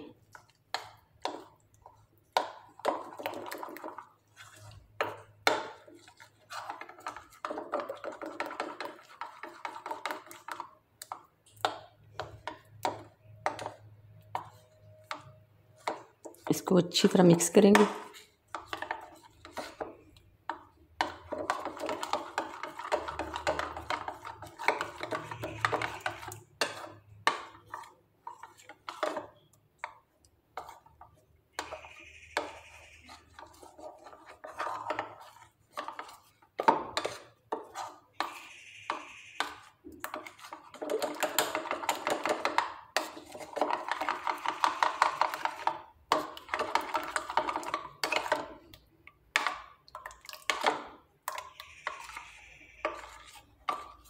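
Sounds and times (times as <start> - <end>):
spoon clinking and scraping bowl: 0.0 - 54.0.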